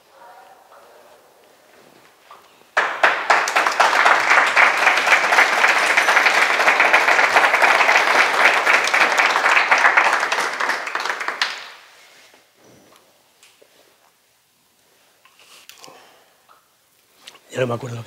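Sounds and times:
audience clapping: 2.8 - 12.0.

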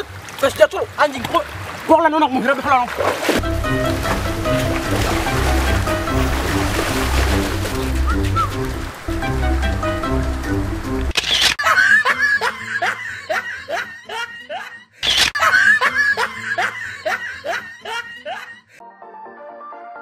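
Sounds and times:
background music: 3.4 - 14.8, 15.4 - 20.0
high laughing sound effect: 11.6 - 14.6, 15.4 - 18.4.

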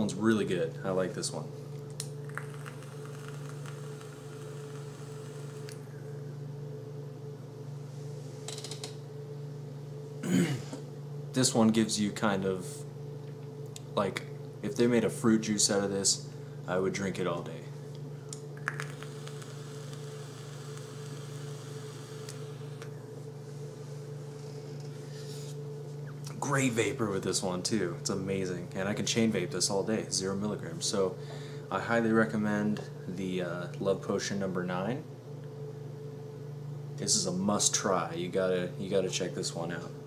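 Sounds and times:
faint airflow hiss: 0.0 - 8.5, 13.8 - 35.1
steady low hum: 0.0 - 40.0
airy hiss of e-cigarette drag: 18.9 - 22.8
soft exhale: 31.2 - 31.7.

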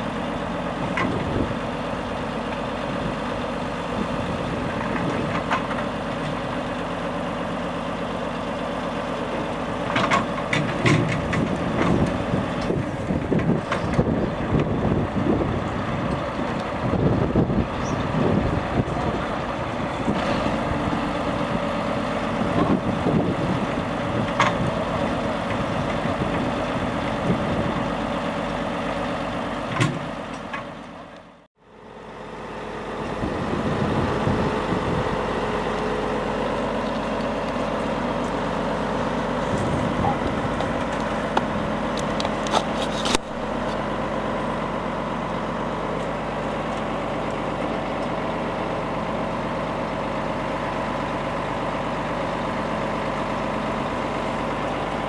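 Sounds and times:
diesel truck engine running: 0.0 - 55.0.

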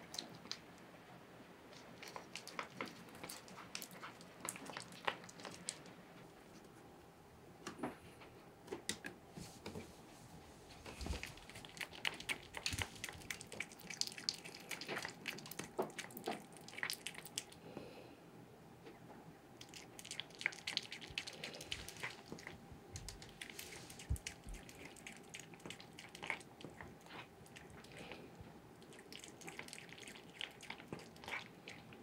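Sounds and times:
cat chewing and lapping: 0.0 - 1.0, 1.6 - 6.7, 10.7 - 17.8, 19.5 - 32.0.

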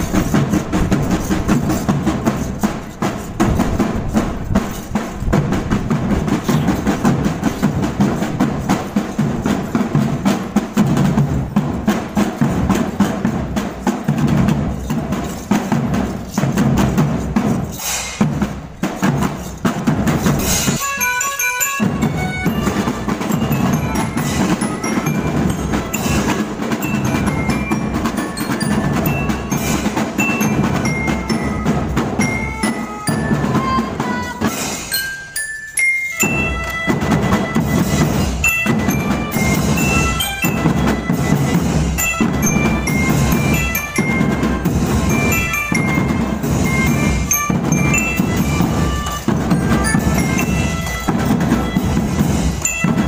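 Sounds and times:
marching drums beating: 0.0 - 53.0
high bell notes: 19.0 - 53.0.

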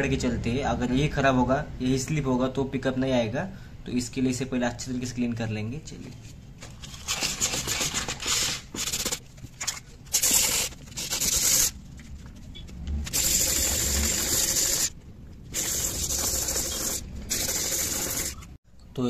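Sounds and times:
sandpaper rasping on metal: 10.2 - 11.7, 13.1 - 18.5.

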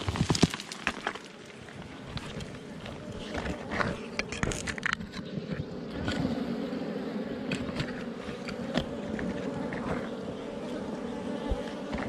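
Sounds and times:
bees buzzing: 1.3 - 12.0
knife scraping soil and stone: 2.2 - 6.4, 7.5 - 10.2.

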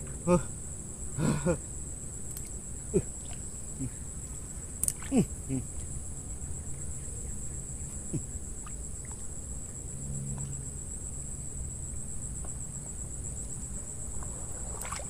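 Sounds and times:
insects trilling: 0.0 - 15.0
low outdoor rumble: 0.0 - 15.0
faint ticks: 2.3 - 2.6.

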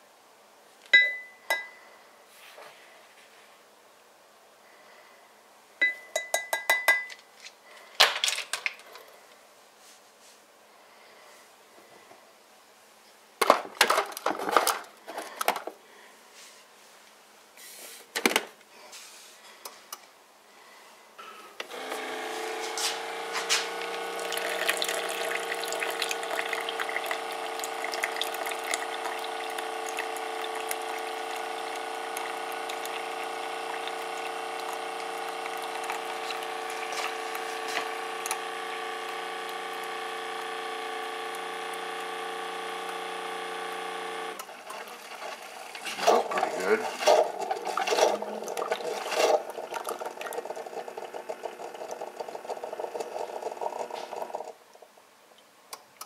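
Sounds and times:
coffee maker pump humming: 21.2 - 54.6
coffee maker sputtering: 21.7 - 54.6.

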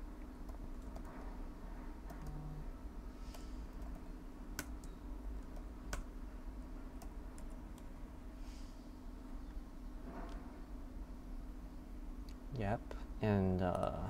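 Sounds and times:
steady low hum: 0.0 - 14.0
computer keyboard key clicks: 0.4 - 1.2.

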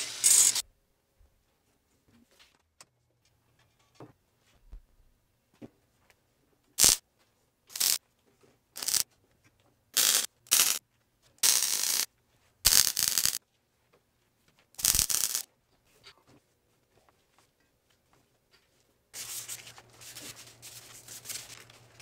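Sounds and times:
welder arc crackle: 0.0 - 0.6, 6.8 - 7.0, 7.7 - 8.0, 8.8 - 9.0, 10.0 - 10.8, 11.4 - 12.1, 12.7 - 13.4, 14.8 - 15.4.

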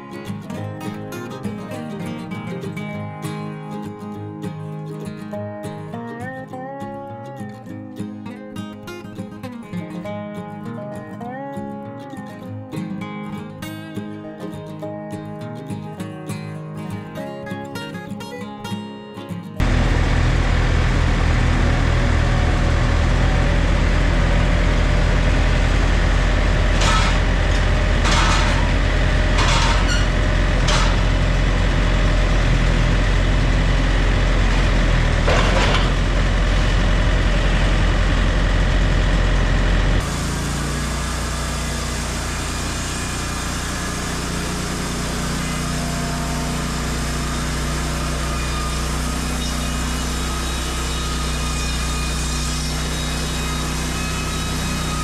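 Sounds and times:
diesel engine under load: 19.6 - 51.3
brief harsh noises: 29.4 - 31.2.

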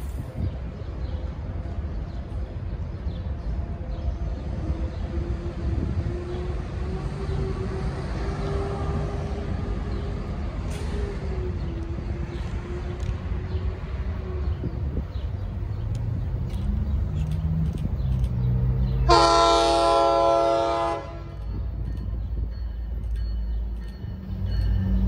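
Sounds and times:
distant vehicle rumble: 6.3 - 25.0.

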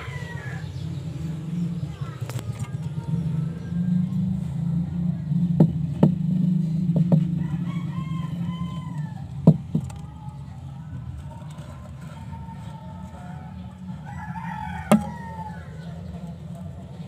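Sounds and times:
rooster crowing: 0.0 - 0.7, 7.3 - 9.4, 12.3 - 16.0
sharp knocks and taps: 6.9 - 7.4, 9.4 - 10.1, 14.9 - 15.3.

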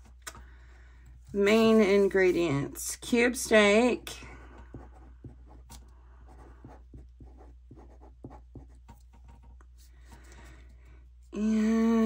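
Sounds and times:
pen scratching on paper: 4.5 - 9.5.

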